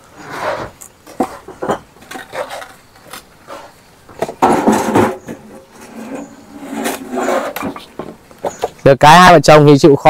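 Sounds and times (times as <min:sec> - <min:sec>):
bricks clinking and knocking: 0:00.6 - 0:03.2
scraping sound: 0:04.4 - 0:08.2.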